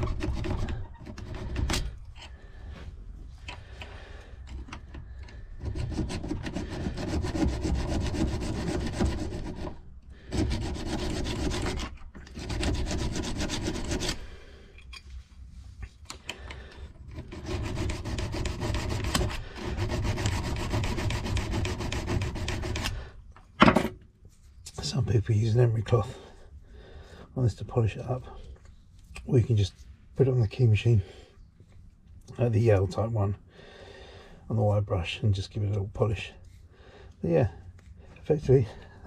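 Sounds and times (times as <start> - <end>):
hand file rasping on metal: 0.0 - 1.8, 5.6 - 14.3, 17.1 - 23.0.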